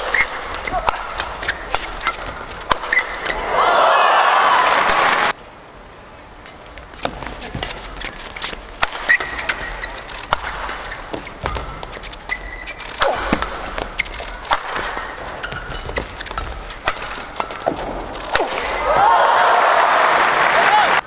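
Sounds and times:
shoes squeaking on court: 0.0 - 3.5, 4.8 - 18.8
racket hitting shuttlecock: 0.0 - 3.6, 6.9 - 19.1.

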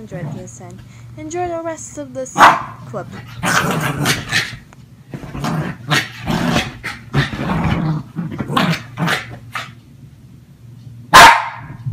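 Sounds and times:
dog growling: 0.0 - 0.6, 3.1 - 9.7.

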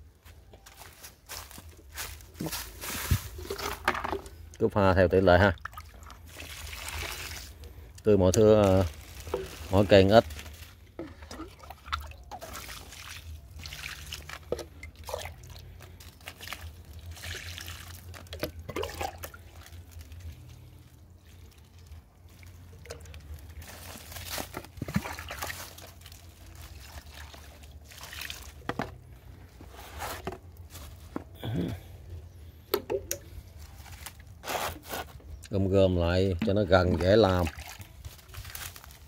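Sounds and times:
liquid pouring onto soil: 4.6 - 29.2, 36.2 - 39.0.

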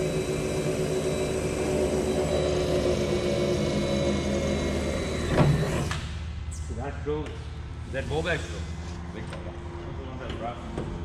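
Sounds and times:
machine motor running: 0.0 - 6.0.

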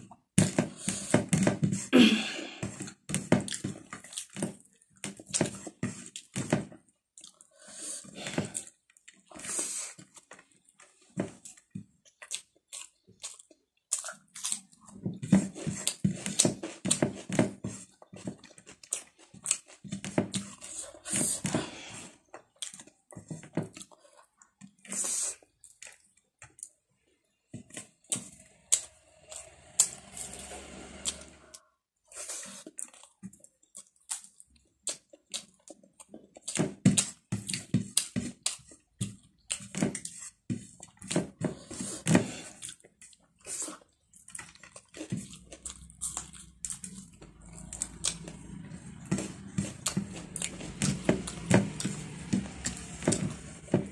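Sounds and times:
wet chewing and lip smacking: 7.1 - 7.5, 8.5 - 15.1, 32.3 - 41.2, 42.5 - 53.2.

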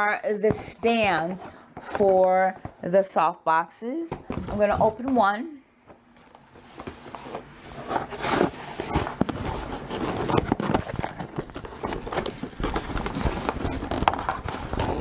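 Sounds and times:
cardboard scraping and rustling: 6.2 - 15.0.

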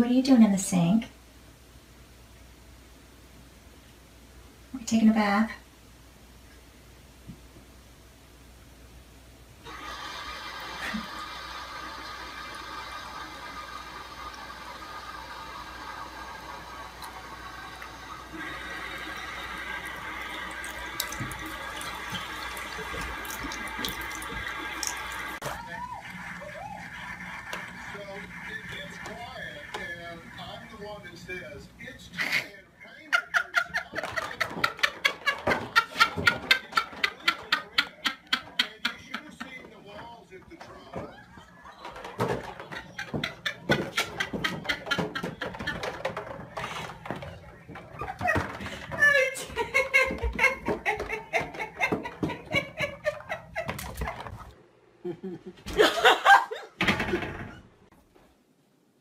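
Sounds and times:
tap water running into sink: 9.7 - 25.4
footsteps on carpeted stairs: 42.4 - 52.9.

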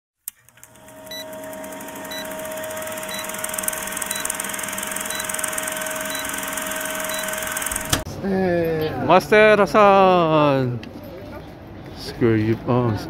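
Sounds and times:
film projector whirring rattle: 0.3 - 8.0
faint high beeps: 2.1 - 8.0.

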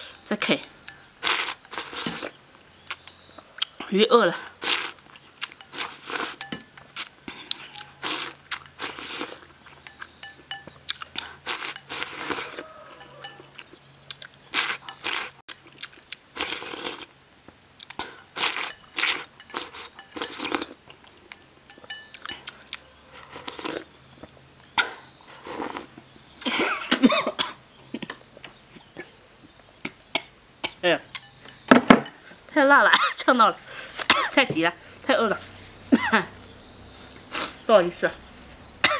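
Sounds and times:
person slurping and chewing: 1.2 - 2.4, 4.5 - 10.2, 10.9 - 12.7, 13.6 - 17.1, 17.8 - 21.2, 25.4 - 25.9
woman coughing: 26.5 - 27.6, 32.9 - 33.3, 34.1 - 34.5, 35.9 - 36.3.

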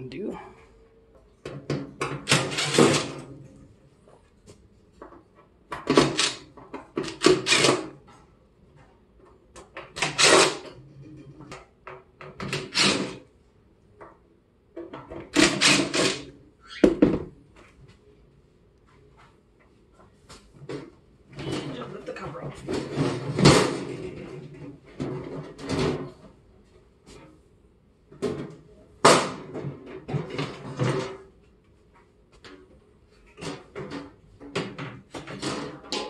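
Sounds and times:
impact driver bursts: 7.2 - 7.9, 15.4 - 16.3.

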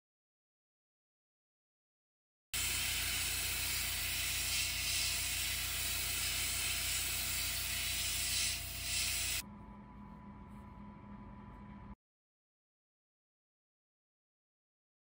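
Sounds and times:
airbrush hissing: 2.6 - 9.4
low hum: 8.7 - 12.0.

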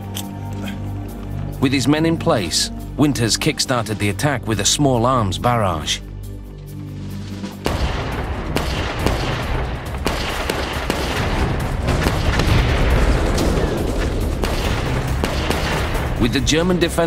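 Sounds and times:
rifle and machine-gun fire: 7.6 - 16.2.

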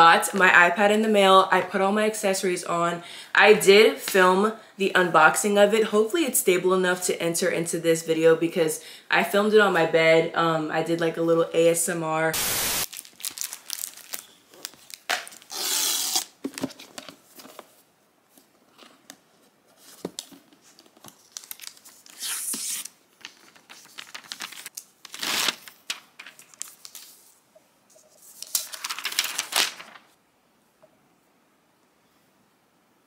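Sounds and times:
paper wrap tearing: 12.4 - 16.4, 21.2 - 27.1, 28.4 - 30.1
paper crinkling: 12.8 - 17.7, 19.8 - 27.4, 28.0 - 30.2.

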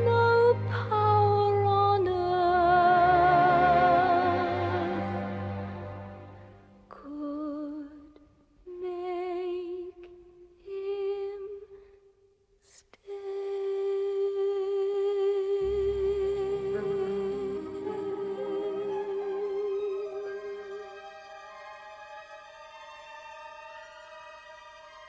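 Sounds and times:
woman singing wordlessly: 0.0 - 5.0, 6.9 - 11.7, 12.9 - 20.3
low orchestral accompaniment: 0.0 - 6.8, 15.6 - 25.0.

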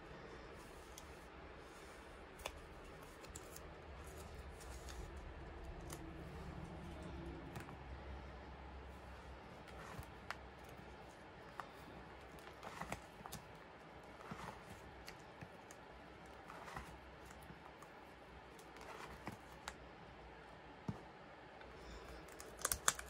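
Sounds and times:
light clicks of cards: 1.8 - 7.8.

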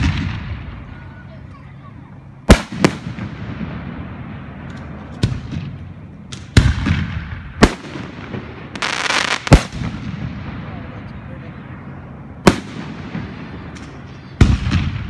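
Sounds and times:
firework hissing: 7.6 - 9.9.

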